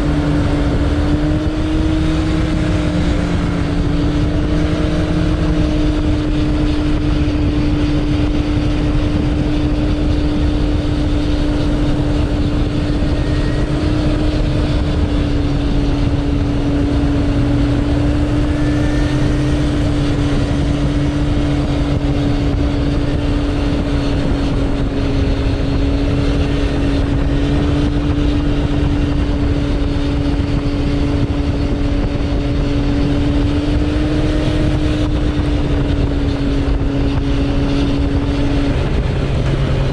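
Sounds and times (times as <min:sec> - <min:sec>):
motorcycle engine cruising: 0:00.0 - 0:39.9
road noise: 0:00.0 - 0:39.9
wind rush: 0:00.0 - 0:39.9.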